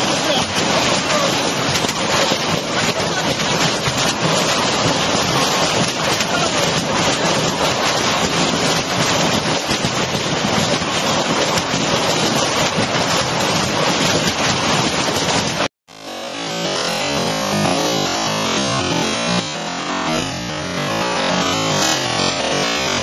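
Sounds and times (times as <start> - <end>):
hailstones clattering on roofs: 0.0 - 15.7.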